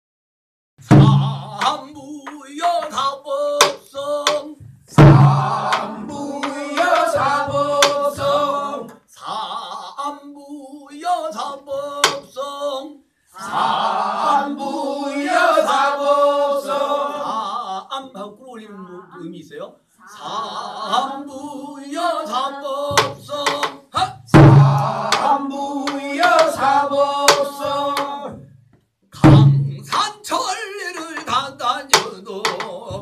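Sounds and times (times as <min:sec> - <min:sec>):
deep drum thump: 0:00.8 - 0:01.6, 0:04.6 - 0:05.8, 0:24.4 - 0:24.9, 0:29.2 - 0:30.0
person singing: 0:01.0 - 0:08.6, 0:20.0 - 0:28.4, 0:29.8 - 0:33.0.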